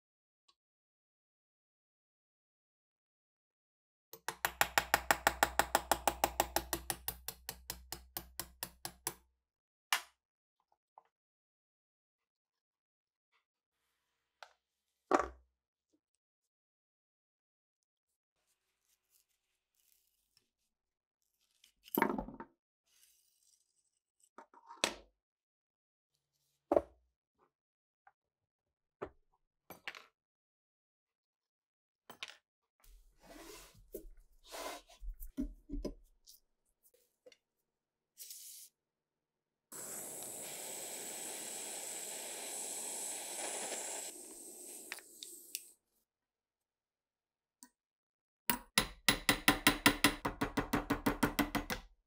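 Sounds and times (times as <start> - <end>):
hammer tapping on metal punch: 48.5 - 51.8.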